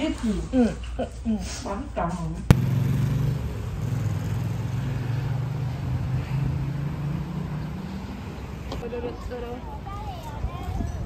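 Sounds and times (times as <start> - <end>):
vehicle engines humming: 2.5 - 10.0
road noise: 2.5 - 11.0.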